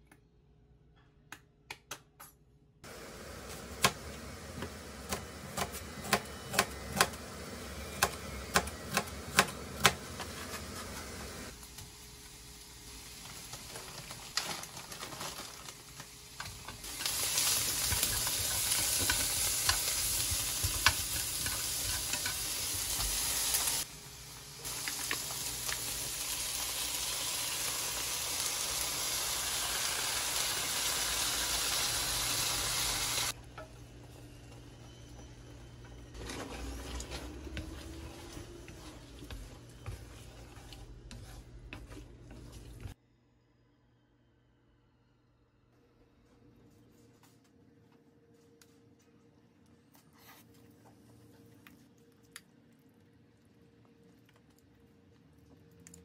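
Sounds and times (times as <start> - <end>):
food sizzling in frying pan: 11.3 - 33.4.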